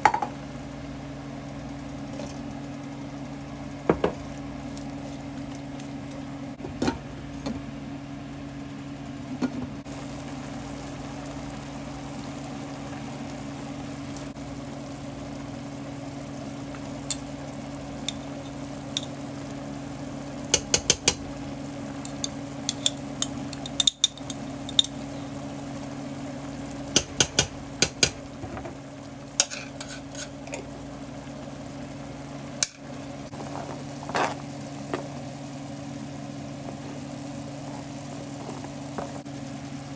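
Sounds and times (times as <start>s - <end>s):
steady low hum: 0.0s - 39.9s
spatula stirring food in a pan: 29.4s - 30.5s.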